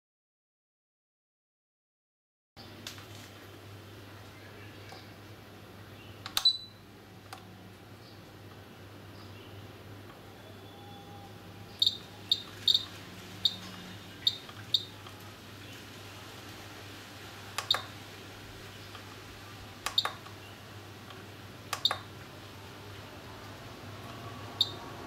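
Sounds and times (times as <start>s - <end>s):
short high key beeps: 6.4s - 6.8s
jog dial clicking: 17.6s - 18.0s, 19.8s - 20.4s, 21.1s - 22.1s.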